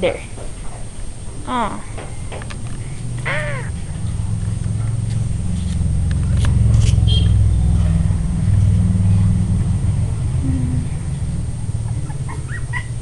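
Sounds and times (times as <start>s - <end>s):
loud low rumble: 2.8s - 13.0s.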